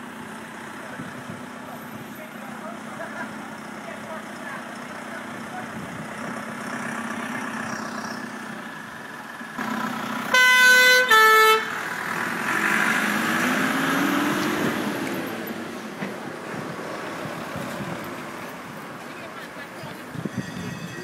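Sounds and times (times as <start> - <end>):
fire engine driving past: 0.0 - 21.0
vehicle horn blasts: 10.3 - 11.8, 20.2 - 21.0.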